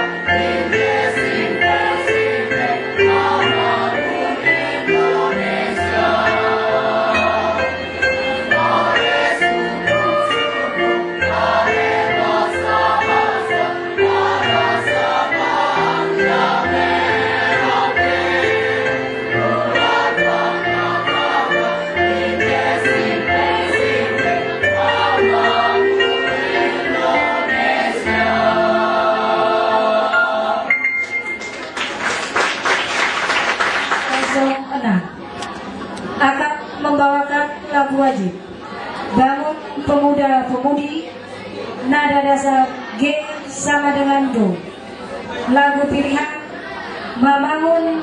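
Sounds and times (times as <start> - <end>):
choir singing: 0.0 - 30.9.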